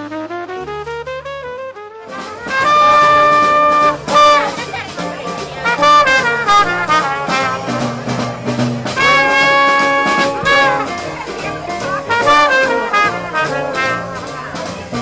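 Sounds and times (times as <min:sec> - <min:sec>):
trumpet holding long note: 0:00.0 - 0:04.6, 0:05.6 - 0:07.8, 0:09.0 - 0:11.0, 0:12.1 - 0:14.3
jazz band playing: 0:00.0 - 0:15.0.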